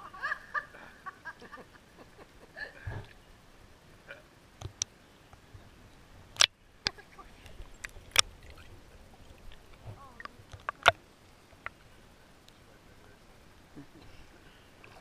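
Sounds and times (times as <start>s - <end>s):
water sloshing and splashing: 6.4s - 12.1s.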